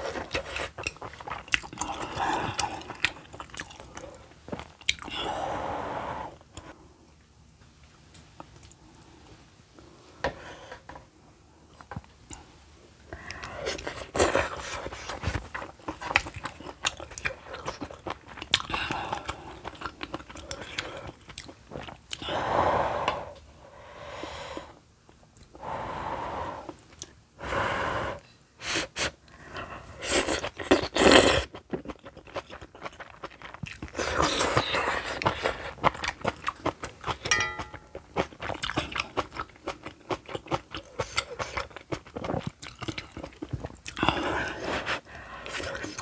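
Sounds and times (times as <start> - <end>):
wet chewing and mouth clicks: 0.1 - 5.1, 13.2 - 22.2, 30.1 - 44.2.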